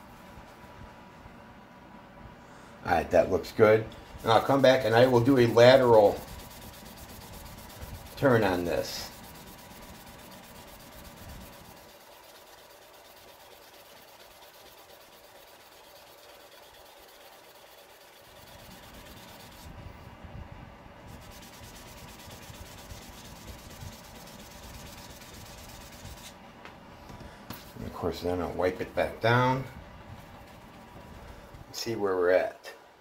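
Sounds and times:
sanding pad hissing on acrylic: 4.2 - 19.8, 21.1 - 26.4, 30.2 - 31.5.

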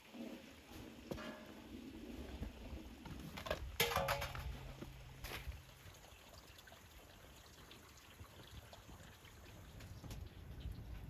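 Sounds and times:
metallic knocks of colander and pot: 3.4 - 5.0
liquid dripping and trickling: 4.2 - 11.0.

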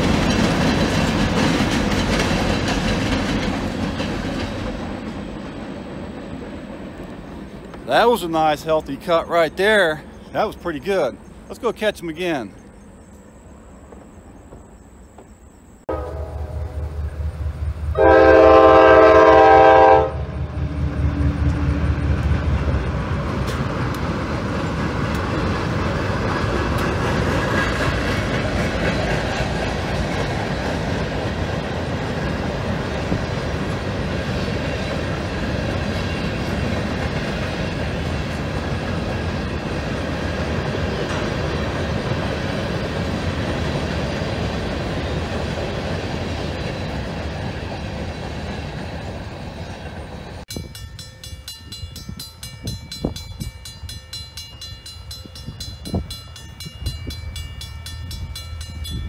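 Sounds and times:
train wheels on rails clattering: 0.0 - 13.2, 20.6 - 59.0
locomotive horn blast: 15.9 - 17.3, 17.9 - 20.4
locomotive engine running: 15.9 - 59.0.

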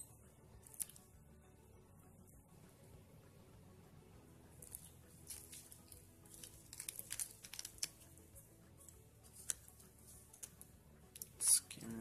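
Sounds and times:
plastic wrapping crinkling: 4.7 - 8.1.

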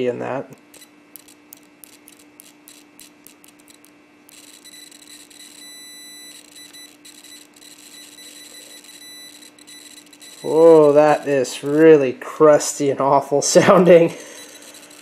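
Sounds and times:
probe tips clicking together: 0.5 - 5.5
meter continuity buzzer beep: 0.7 - 11.8, 14.0 - 15.0.

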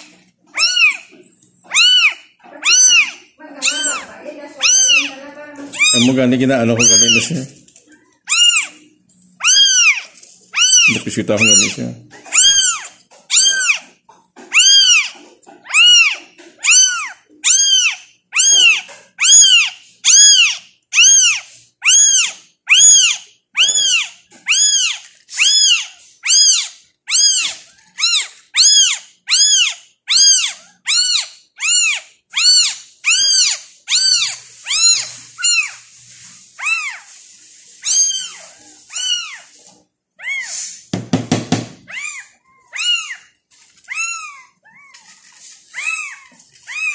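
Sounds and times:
kitten mewing: 0.6 - 7.3, 8.3 - 13.9, 14.5 - 35.8.

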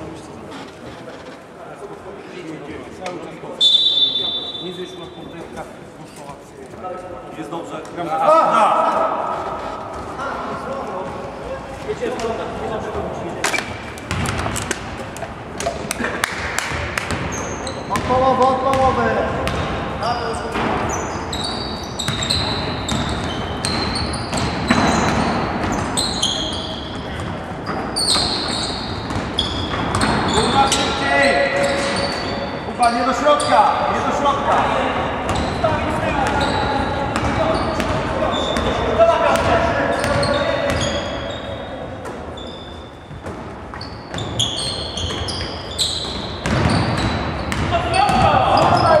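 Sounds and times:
basketball bouncing: 14.0 - 14.9, 16.6 - 19.9, 22.0 - 25.9, 29.0 - 30.3, 46.0 - 48.8
sneaker squeaks on court floor: 16.7 - 33.7, 35.2 - 49.0.

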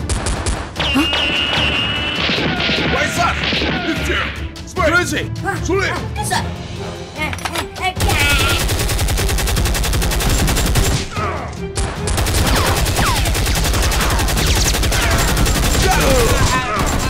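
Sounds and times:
machine-gun fire: 8.0 - 11.1, 11.9 - 17.0.

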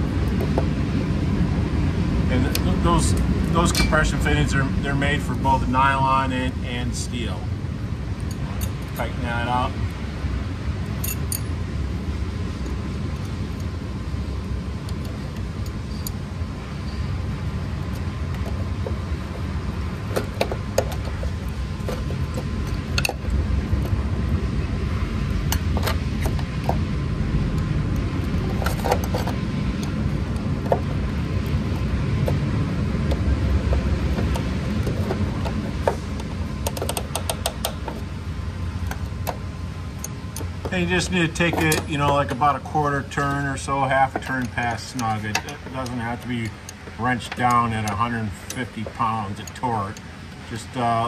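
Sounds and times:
steady low rumble: 0.0 - 51.0
wrenches clinking on metal fitting: 3.6 - 4.1, 40.0 - 50.8.

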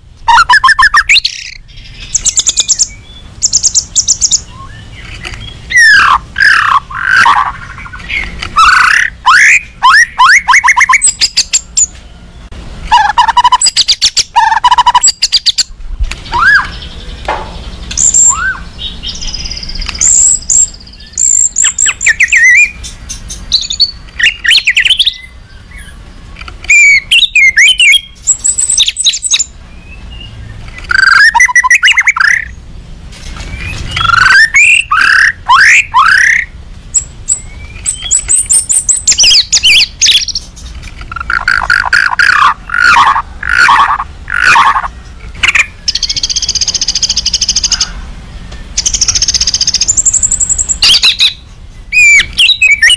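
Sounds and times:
bird singing whistled notes: 0.3 - 26.0, 26.7 - 32.6, 33.4 - 40.5, 41.3 - 47.9, 48.5 - 52.9.

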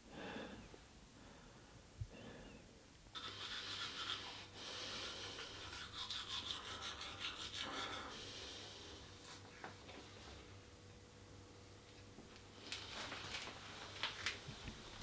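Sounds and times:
toothbrush scrubbing teeth: 3.2 - 8.2.

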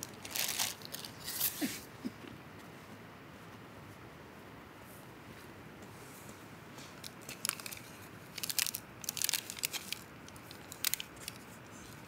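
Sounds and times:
crinkling handling noises: 0.0 - 1.8, 6.0 - 12.0.

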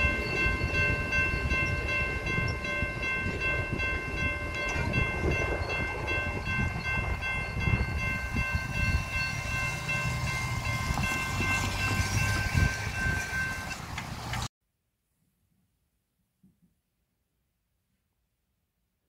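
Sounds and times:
railroad crossing bell ringing: 0.0 - 14.5.

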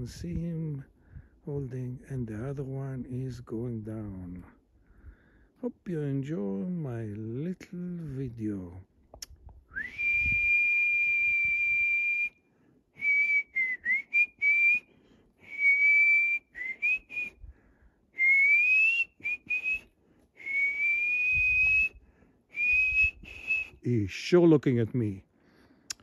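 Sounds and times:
person whistling: 9.7 - 12.4, 13.0 - 17.4, 18.2 - 23.8.

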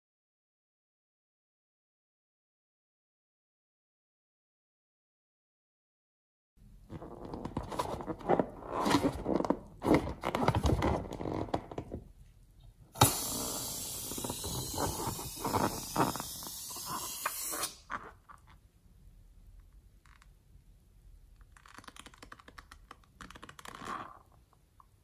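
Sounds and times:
balloon scraping and squeaking: 6.8 - 11.9, 13.2 - 18.5, 21.5 - 24.4
hiss with wet squelching: 13.0 - 17.8.

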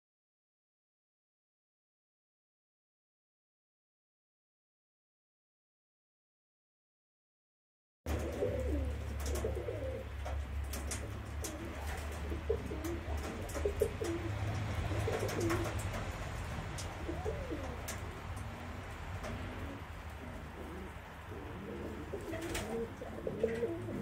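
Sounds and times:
pigeons cooing: 8.1 - 24.0.

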